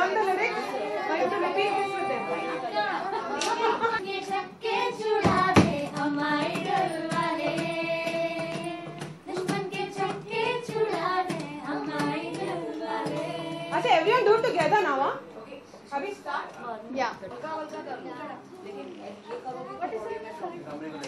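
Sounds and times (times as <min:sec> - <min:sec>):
children singing: 0:00.0 - 0:14.6
sharp thump: 0:05.2 - 0:07.7.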